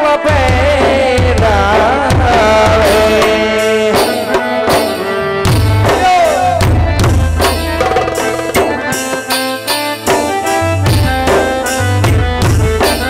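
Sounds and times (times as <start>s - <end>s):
hand drums beating rhythm: 0.3s - 13.0s
sustained melody instrument: 3.4s - 13.0s.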